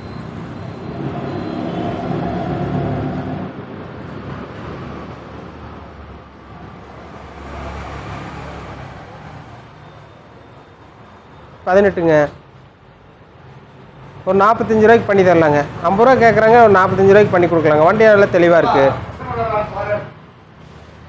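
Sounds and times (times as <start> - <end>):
motor vehicle passing: 0.0 - 5.9, 6.6 - 9.8
road traffic hum: 0.0 - 21.0.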